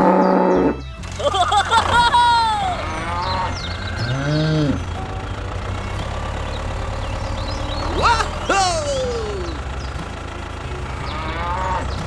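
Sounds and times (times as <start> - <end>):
cow mooing: 0.0 - 0.9, 2.6 - 5.0, 10.8 - 12.0
low engine hum: 0.0 - 12.0.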